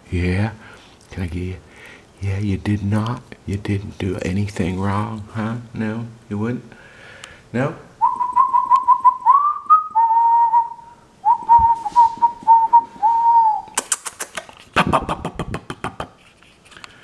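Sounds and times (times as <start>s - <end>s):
person whistling warbling tone: 8.0s - 13.8s
sharp clicks: 13.7s - 14.6s.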